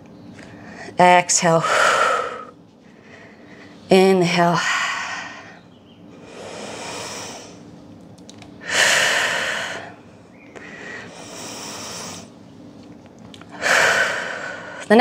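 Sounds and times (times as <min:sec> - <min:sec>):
woman breathing deeply: 0:01.6 - 0:03.9, 0:04.6 - 0:07.7, 0:08.6 - 0:12.3, 0:13.5 - 0:14.9.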